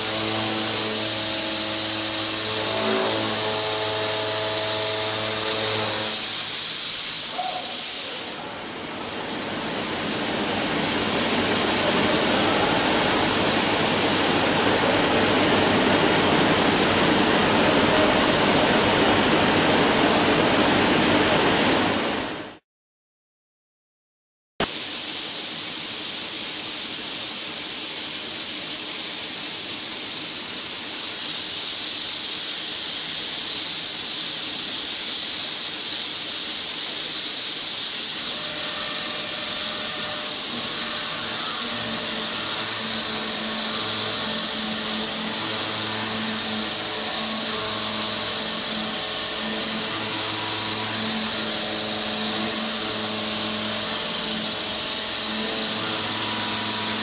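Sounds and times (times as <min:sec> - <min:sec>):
milling cutter cutting tone: 0:00.0 - 0:06.4, 0:38.1 - 0:57.0
steady high hiss: 0:00.7 - 0:19.6, 0:24.7 - 0:57.0.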